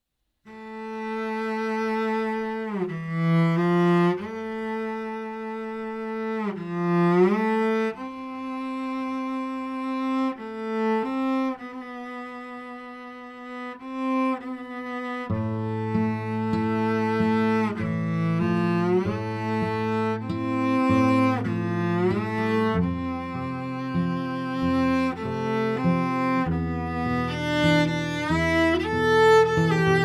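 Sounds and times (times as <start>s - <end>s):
slow cello melody: 0.5s - 30.0s.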